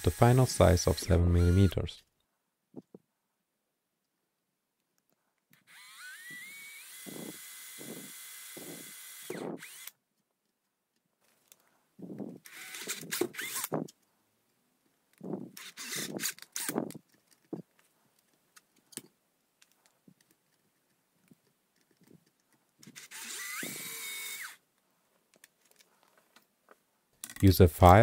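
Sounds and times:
cordless drill boring into plastic: 0.0s - 1.9s, 5.6s - 10.0s, 12.2s - 13.9s, 15.3s - 17.0s, 22.8s - 24.6s.

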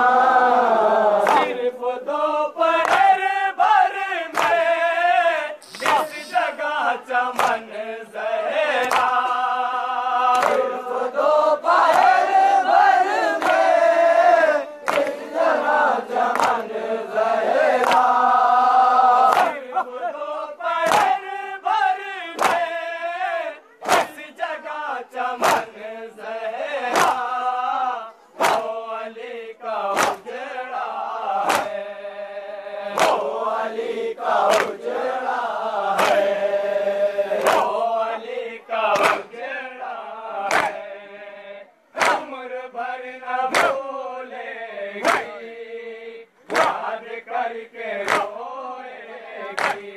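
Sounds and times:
men chanting in unison: 0.0s - 49.9s
chest-beating slaps: 5.6s - 6.5s, 7.3s - 7.6s, 8.8s - 9.4s, 10.3s - 10.7s, 14.8s - 15.3s, 20.8s - 21.2s, 22.4s - 22.7s, 23.8s - 24.2s, 25.4s - 25.7s, 26.9s - 27.3s, 28.4s - 28.7s, 29.9s - 30.3s, 31.4s - 31.8s, 32.9s - 33.4s, 36.0s - 36.3s, 37.3s - 37.8s, 38.9s - 39.3s, 40.4s - 40.8s, 42.0s - 42.3s, 43.5s - 43.8s, 45.0s - 45.4s, 46.5s - 46.8s, 48.0s - 48.4s, 49.5s - 49.9s.

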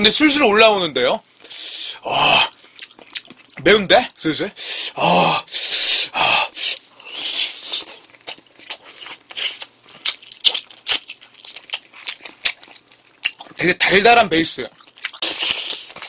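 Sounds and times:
huffs of breath: 1.4s - 2.0s, 4.6s - 7.6s
close chewing: 2.5s - 3.6s, 6.6s - 13.6s, 14.6s - 16.0s.

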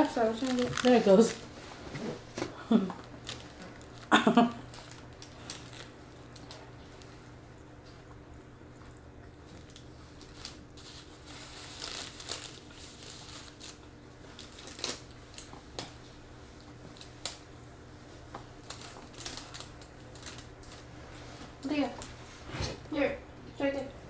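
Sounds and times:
paper wrapper crinkling: 0.0s - 1.6s, 3.0s - 6.6s, 9.6s - 15.6s, 18.6s - 21.0s.

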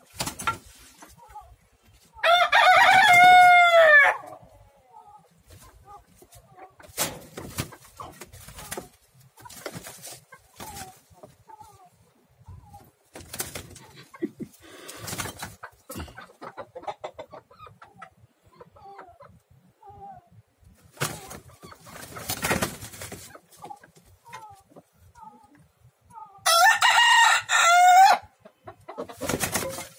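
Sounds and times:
rooster clucking: 12.5s - 20.2s, 21.0s - 29.9s
wings flapping: 13.2s - 13.8s, 20.9s - 23.3s, 29.2s - 29.9s.

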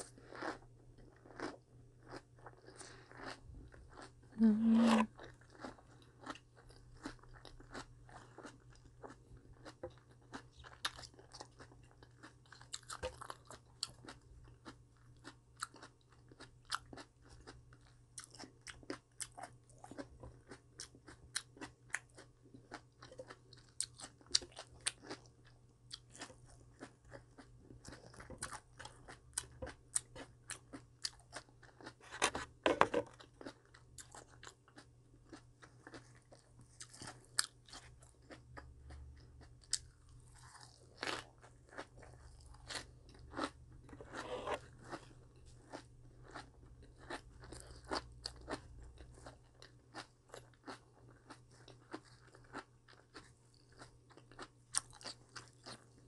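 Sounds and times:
person chewing crisp vegetables: 0.0s - 56.0s.

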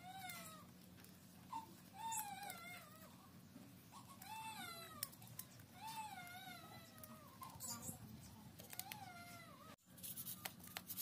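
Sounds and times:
knife shaving wood clicks: 8.6s - 9.0s.

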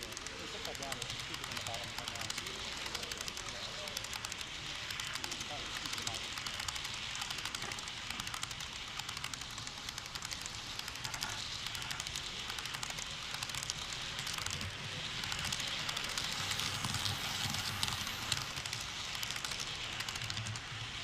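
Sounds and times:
model train wheels rumbling: 0.0s - 21.0s
rapid clicking of train wheels: 0.0s - 21.0s.

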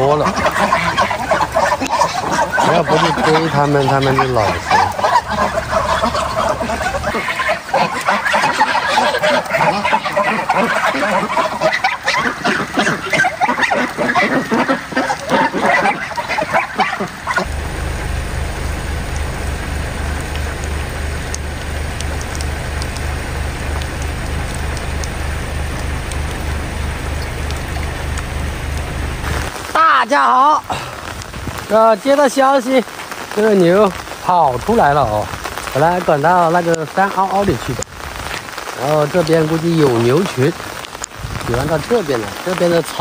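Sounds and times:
ducks quacking: 0.0s - 17.8s
geese honking: 0.0s - 30.6s
rain hissing: 0.0s - 43.0s.

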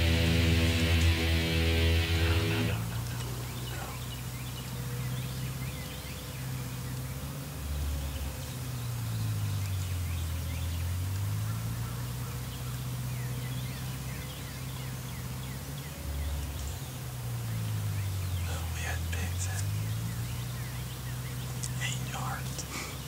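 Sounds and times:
hogs grunting: 0.1s - 5.1s, 18.3s - 20.5s, 21.3s - 23.0s
faint bird chirps: 2.7s - 23.0s.

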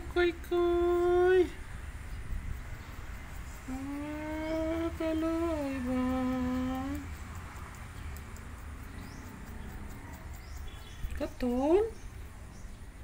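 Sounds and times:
low background hum: 0.0s - 13.0s
person humming low notes: 3.6s - 7.1s.

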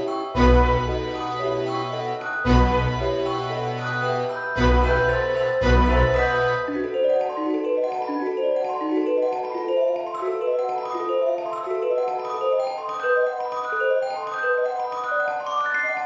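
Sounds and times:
quick pitched notes music: 0.0s - 8.2s.

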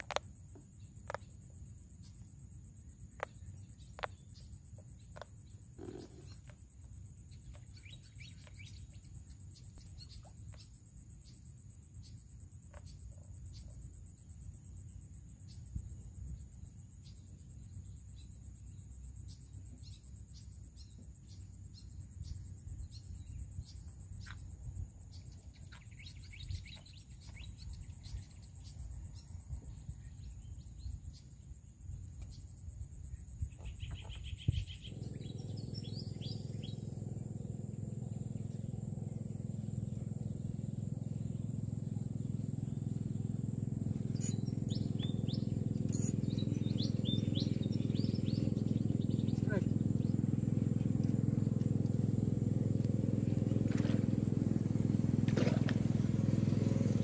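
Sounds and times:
high insect tone: 0.0s - 57.0s
birds chirping: 2.0s - 11.4s, 25.1s - 31.4s, 33.1s - 57.0s
small boat engine running: 3.2s - 31.3s, 33.5s - 57.0s.

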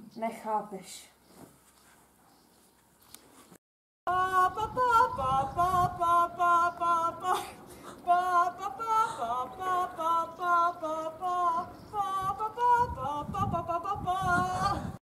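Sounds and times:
woman singing with vibrato: 4.1s - 15.0s.

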